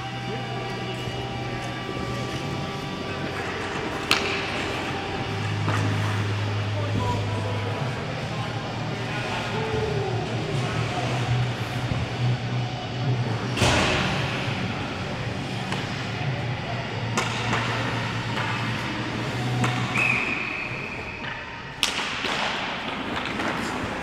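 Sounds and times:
steady low hum: 0.0s - 19.9s
skates scraping on ice: 0.2s - 12.3s, 22.1s - 24.0s
stick and puck knocks: 3.9s - 4.8s, 17.1s - 18.6s, 21.8s - 24.0s.

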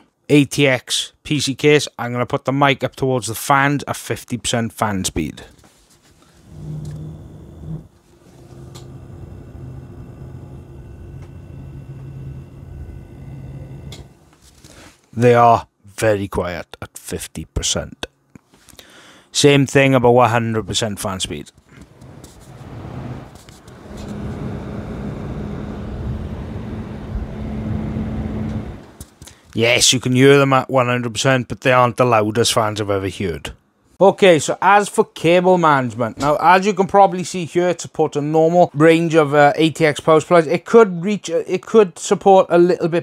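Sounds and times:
computer fans humming: 6.2s - 15.5s, 21.0s - 29.3s.

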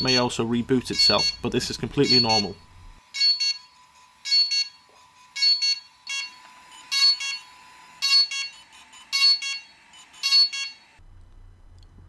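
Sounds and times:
drone high-pitched double beeps: 0.9s - 3.6s.

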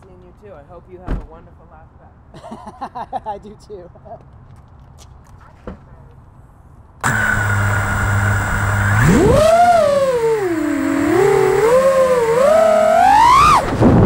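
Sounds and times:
quadcopter motors whining: 7.0s - 14.0s.

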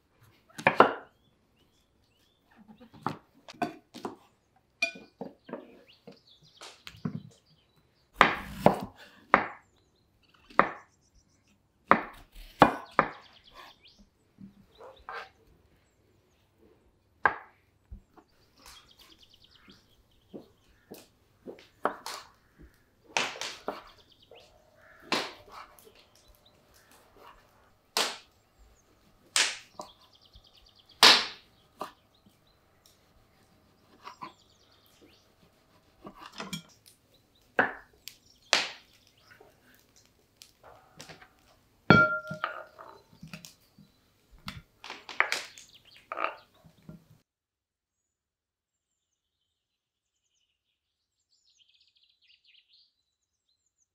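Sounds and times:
knife cutting on wooden board: 35.0s - 36.7s.

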